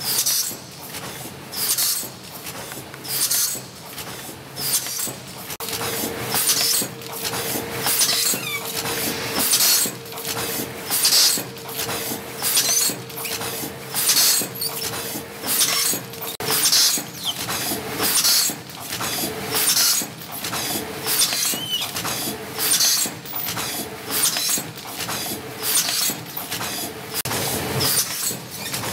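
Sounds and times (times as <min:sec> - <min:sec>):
machine whine: 0:05.6 - 0:17.5.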